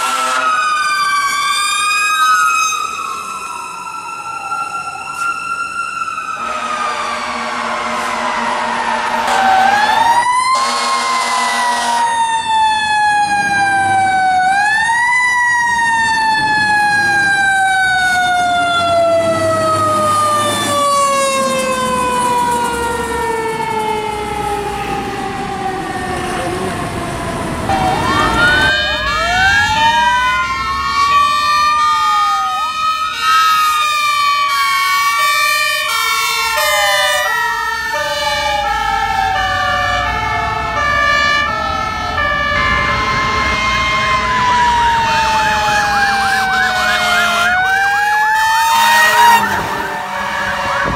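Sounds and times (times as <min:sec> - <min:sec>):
air horn blast: 0:00.0 - 0:00.6, 0:06.4 - 0:09.6, 0:10.5 - 0:12.2, 0:27.7 - 0:29.6, 0:43.1 - 0:45.3, 0:46.3 - 0:47.8, 0:48.6 - 0:50.9
two-tone horn: 0:00.0 - 0:00.6, 0:06.4 - 0:09.6, 0:10.5 - 0:12.2, 0:27.7 - 0:29.4, 0:35.9 - 0:37.3, 0:46.3 - 0:47.8, 0:48.7 - 0:50.9
electronic wail sirens: 0:00.0 - 0:50.9
mechanical siren: 0:00.0 - 0:50.9.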